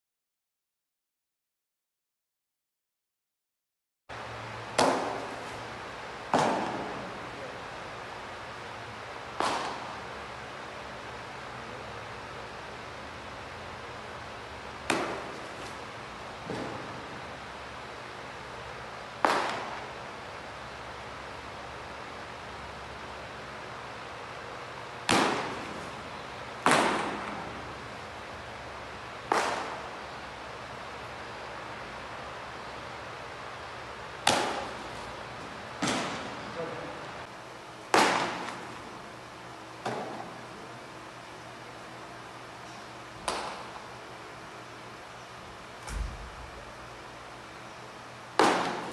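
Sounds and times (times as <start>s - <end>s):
baseball smacking into mitt: 4.7s - 5.5s, 6.3s - 7.0s, 9.4s - 10.1s, 14.8s - 15.8s, 19.2s - 19.9s, 25.1s - 25.9s, 26.6s - 27.7s, 29.3s - 30.0s, 34.2s - 34.9s, 35.8s - 36.4s, 37.9s - 38.8s, 43.2s - 43.8s, 48.4s - 48.9s.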